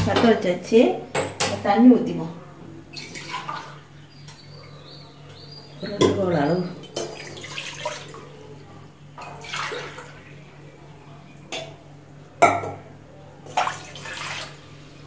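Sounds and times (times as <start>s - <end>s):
water pouring into metal pan: 9.2s - 10.2s, 13.5s - 14.6s.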